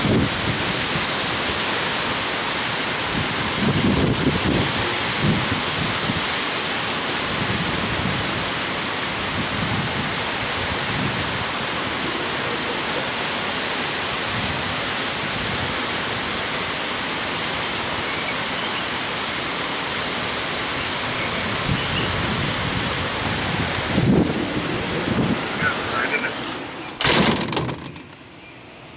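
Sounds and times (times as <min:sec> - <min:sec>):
heavy rain hissing: 0:00.0 - 0:28.0.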